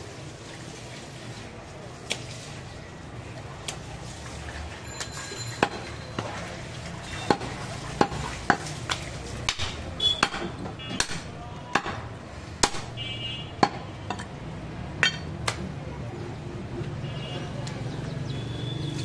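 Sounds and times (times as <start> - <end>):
knife chopping on wooden block: 9.5 - 12.0.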